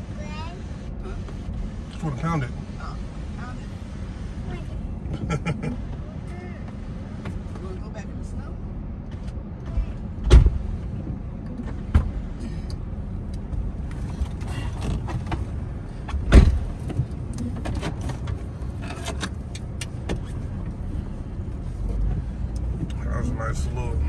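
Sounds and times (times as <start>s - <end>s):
loud thump: 10.2s - 10.7s, 16.2s - 16.8s.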